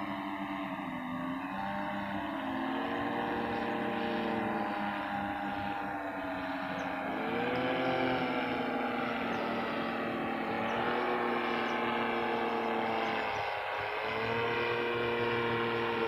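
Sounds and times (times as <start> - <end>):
droning hum wavering in pitch: 0.0 - 16.0.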